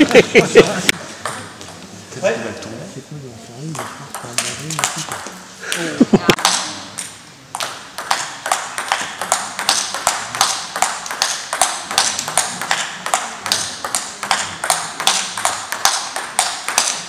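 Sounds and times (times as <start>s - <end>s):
ping pong ball hitting bats: 1.2s - 1.8s, 3.7s - 5.4s, 6.3s - 17.0s
ping pong ball bouncing on table: 3.7s - 5.4s, 6.3s - 17.0s.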